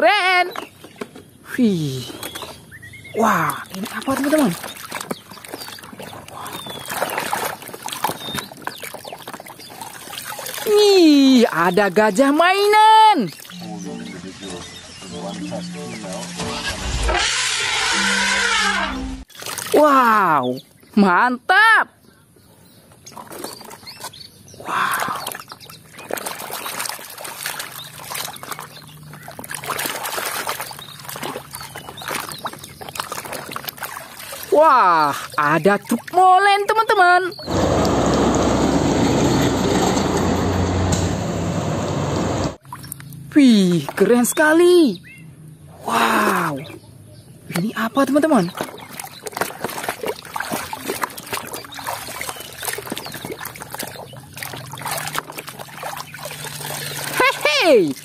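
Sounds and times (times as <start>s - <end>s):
muddy water sloshing in a tub: 0.0s - 16.5s, 19.2s - 21.3s, 22.6s - 38.0s, 45.8s - 58.0s
water trickling: 2.3s - 16.4s, 23.1s - 37.9s, 47.6s - 58.0s.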